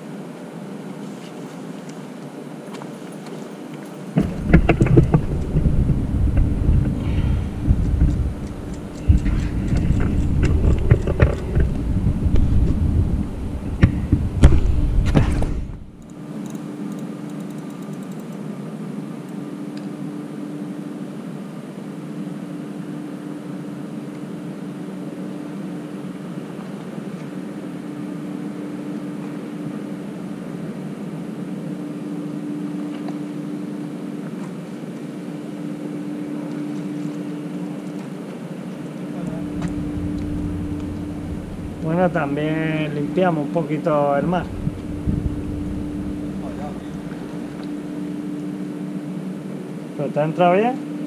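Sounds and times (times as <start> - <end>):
mechanical drone: 4.2 - 18.4, 38.8 - 51.0.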